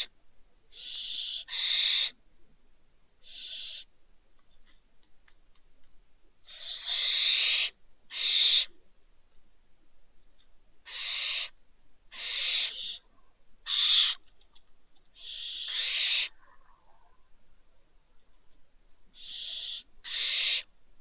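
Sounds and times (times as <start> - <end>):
owl hissing screeches: 0.8 - 2.2, 3.2 - 3.9, 6.5 - 8.7, 10.8 - 11.5, 12.1 - 13.0, 13.6 - 14.2, 15.2 - 16.3, 19.2 - 20.7.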